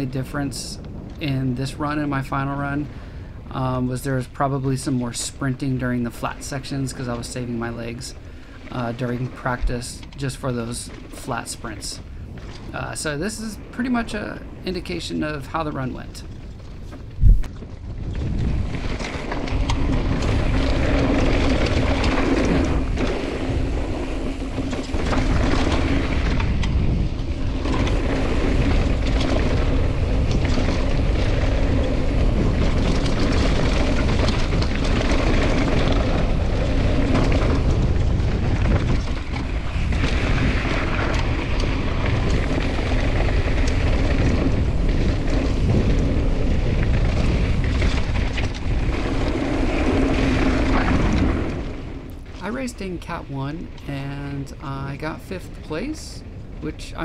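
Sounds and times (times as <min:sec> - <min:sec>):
bike rattling over bumps: 0:00.0 - 0:57.0
tyres rolling over dirt: 0:00.0 - 0:57.0
wind buffeting microphone: 0:00.0 - 0:57.0.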